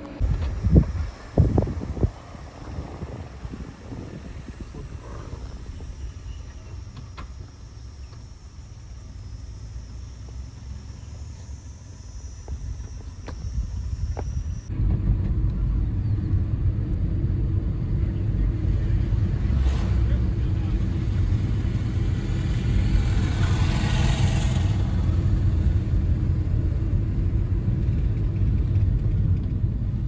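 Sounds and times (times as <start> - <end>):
car road and engine rumble: 0.0 - 30.0
low rumble: 0.0 - 30.0
high insect drone: 0.1 - 14.7, 18.2 - 28.0.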